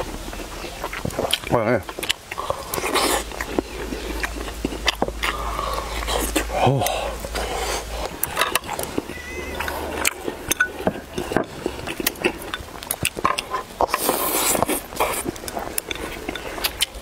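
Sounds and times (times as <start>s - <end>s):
chopsticks clicking on bowls: 9.6s - 17.0s.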